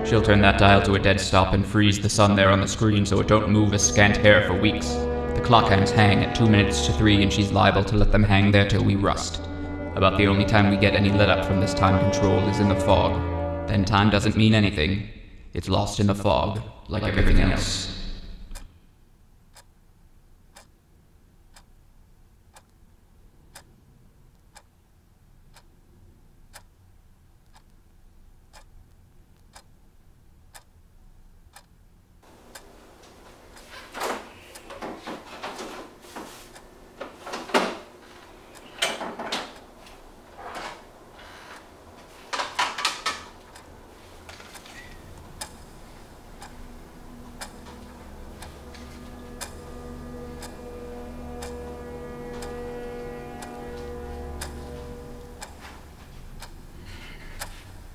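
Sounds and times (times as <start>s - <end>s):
clock ticking: 19.4s - 25.8s, 26.4s - 29.8s, 30.4s - 30.8s, 31.4s - 34.9s, 36.5s - 37.9s, 38.5s - 40.8s, 41.4s - 57.9s.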